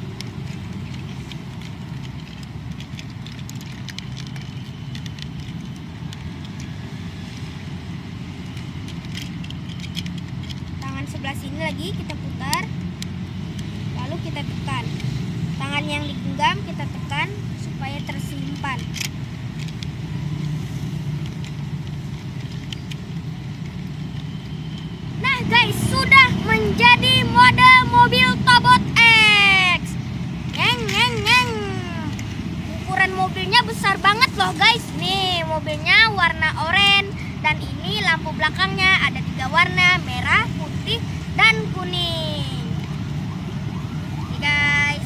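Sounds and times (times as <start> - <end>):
plastic toy parts clicking: 0.0 - 43.2.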